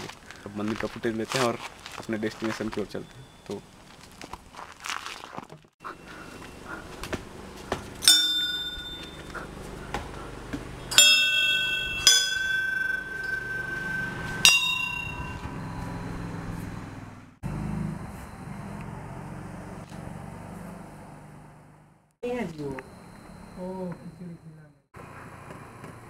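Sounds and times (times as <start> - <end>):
brass bells ringing: 8.0 - 9.6, 10.8 - 16.6.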